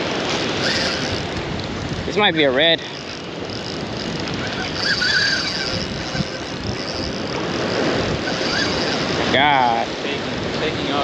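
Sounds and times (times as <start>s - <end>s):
surf washing against rocks: 0.0s - 11.0s
wind: 0.0s - 11.0s
faint bird calls: 3.0s - 7.3s, 8.2s - 9.2s.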